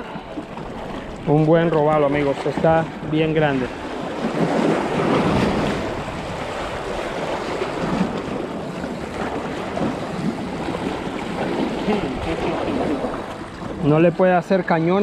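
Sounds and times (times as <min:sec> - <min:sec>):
wind on microphone: 0:00.0 - 0:14.2
waves washing against rocks: 0:00.0 - 0:15.0.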